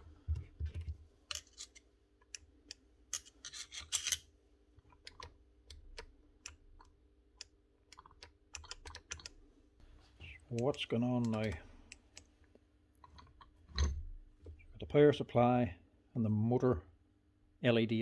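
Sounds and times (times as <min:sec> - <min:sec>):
hands clicking and tapping drill: 0:10.6 - 0:12.3.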